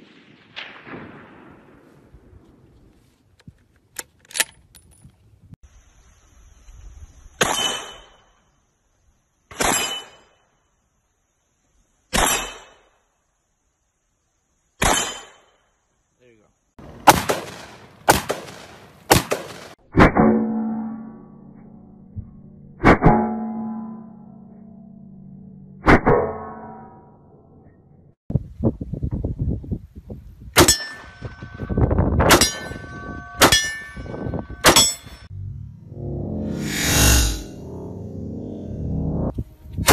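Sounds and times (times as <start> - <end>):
metallic target clang: 7.4 - 8.3, 9.5 - 10.4, 12.2 - 12.9, 14.8 - 15.5, 20.0 - 21.8, 22.8 - 24.9, 30.6 - 31.4, 32.2 - 38.9
loud sharp rifle shots: 16.9 - 19.8.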